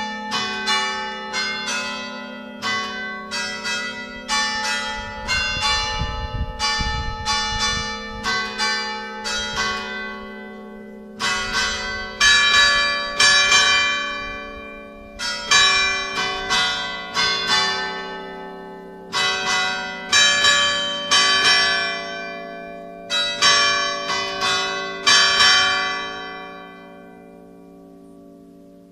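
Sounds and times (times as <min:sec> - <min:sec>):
church bells ringing: 0:00.0 - 0:28.9.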